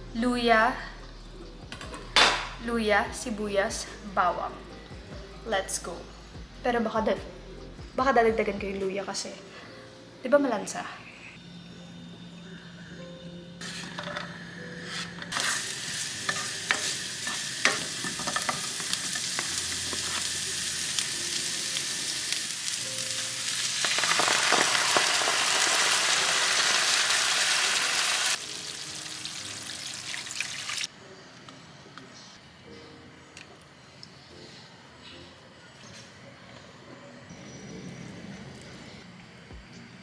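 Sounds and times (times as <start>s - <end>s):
ginger and onion sizzling in oil: 14.8s - 30.9s.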